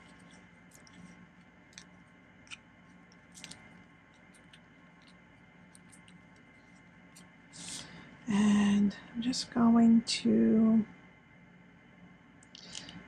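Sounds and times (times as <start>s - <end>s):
paper clicks: 0.0s - 6.5s
faint steady hum: 0.0s - 13.0s.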